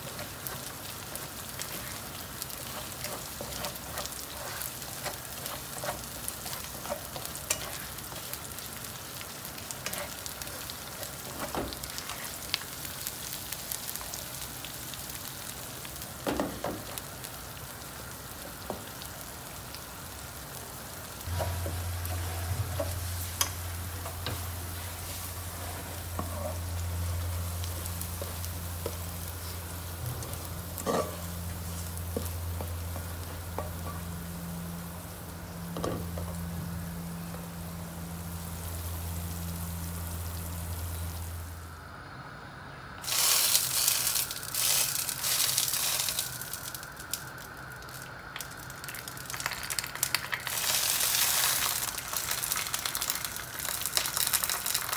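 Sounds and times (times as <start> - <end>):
fish sizzling in a pan: 0.0 - 41.6, 43.0 - 54.9
low steady hum: 19.7 - 43.2.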